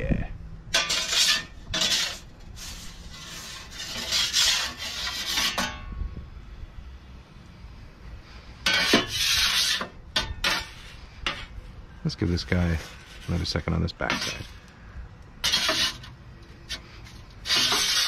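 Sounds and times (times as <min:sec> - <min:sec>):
metal peel scraping stone floor: 0:00.7 - 0:06.0, 0:08.4 - 0:14.8, 0:15.4 - 0:18.0.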